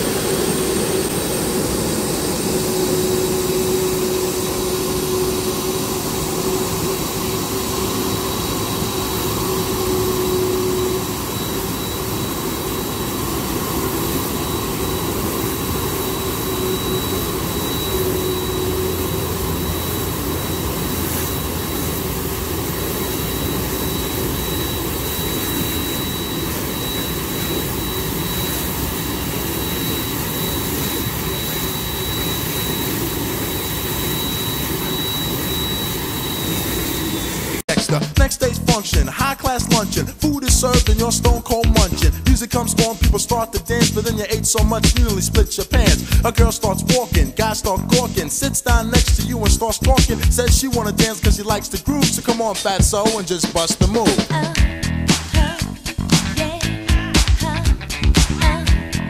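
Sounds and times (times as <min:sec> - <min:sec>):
low hum: 0:00.0 - 0:37.6
thin high whine: 0:00.0 - 0:54.2
jet engines running: 0:00.0 - 0:59.0.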